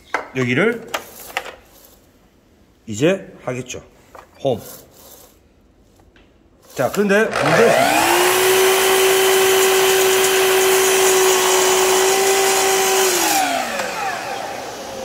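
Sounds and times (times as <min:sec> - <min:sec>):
mitre saw cutting wood: 0:06.8 - 0:15.0
saw motor winding down: 0:07.3 - 0:15.0.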